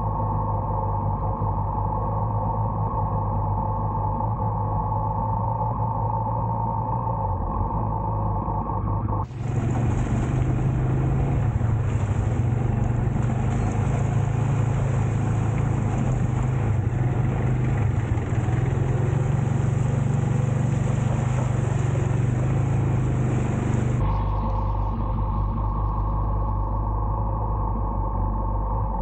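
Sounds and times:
motorcycle engine running: 0:09.2 - 0:26.7
wind and wet road rushing: 0:09.3 - 0:24.0.

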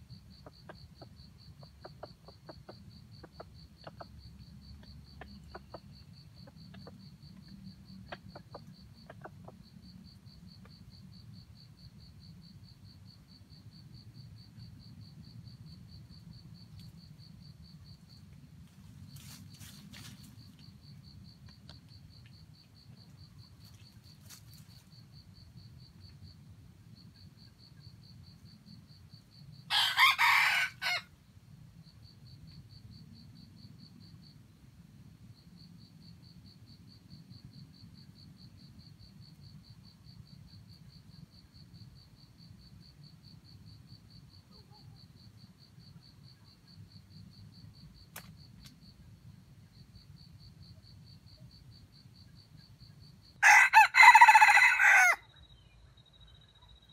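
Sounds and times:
rooster crowing: 0:29.7 - 0:31.1, 0:53.4 - 0:55.3.

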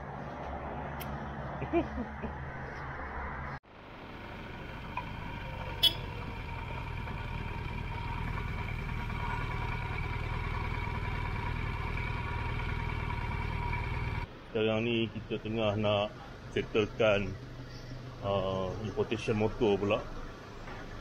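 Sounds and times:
motorcycle engine rumbling: 0:03.7 - 0:14.3.

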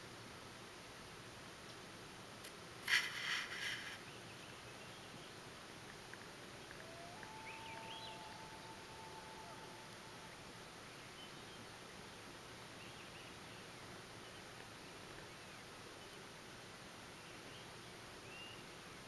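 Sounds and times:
harsh pulsed loon call: 0:06.8 - 0:10.5
loon wail: 0:06.8 - 0:10.6.

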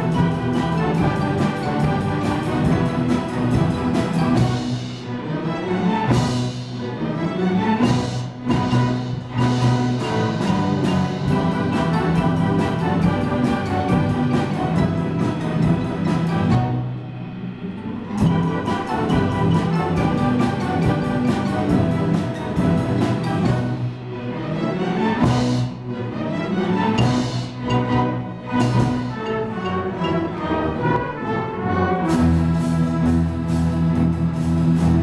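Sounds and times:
orchestra playing: 0:00.0 - 0:35.0
quick percussion beat: 0:07.8 - 0:16.8, 0:18.2 - 0:24.0, 0:27.0 - 0:29.8.

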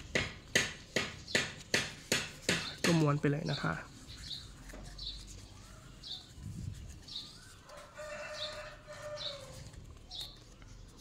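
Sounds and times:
small bird chirping: 0:00.9 - 0:01.6, 0:02.5 - 0:11.0
rooster crowing: 0:07.7 - 0:09.8.

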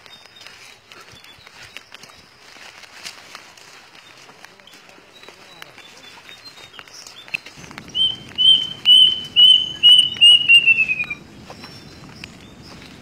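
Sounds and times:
footsteps through undergrowth: 0:00.0 - 0:13.0
rustling undergrowth: 0:00.0 - 0:13.0
cuckoo whistled notes: 0:07.9 - 0:11.2.

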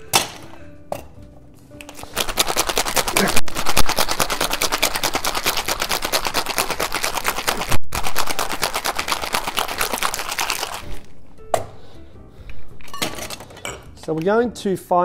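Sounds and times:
ice rattling in cocktail shaker: 0:02.0 - 0:11.0.

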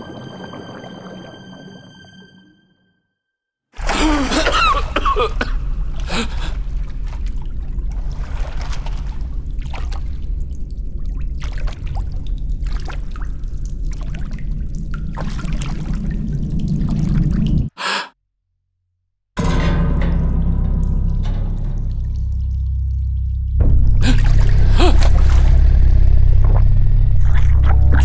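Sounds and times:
water drips and splashes: 0:03.8 - 0:17.7, 0:19.6 - 0:28.0
water trickling and dripping: 0:03.8 - 0:17.7, 0:19.6 - 0:28.0
steady low rumble: 0:04.9 - 0:17.7, 0:19.4 - 0:28.0.

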